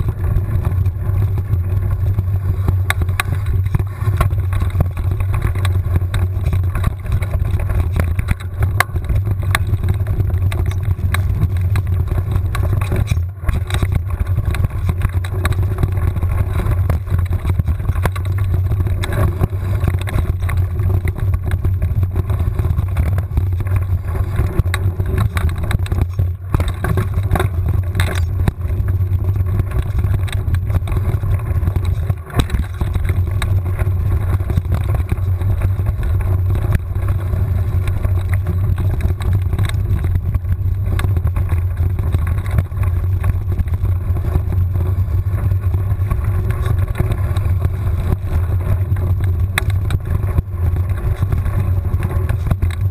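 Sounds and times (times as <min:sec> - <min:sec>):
bike knocks and rattles: 0:00.0 - 0:52.9
wind and vibration rumble: 0:00.0 - 0:52.9.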